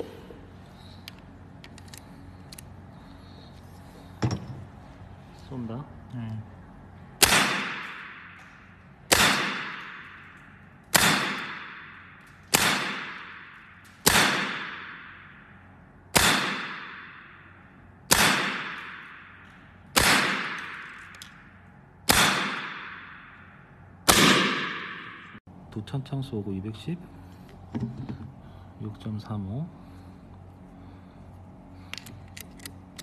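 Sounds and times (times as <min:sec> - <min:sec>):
air rifle shots: 0:07.2 - 0:21.3, 0:22.0 - 0:25.4.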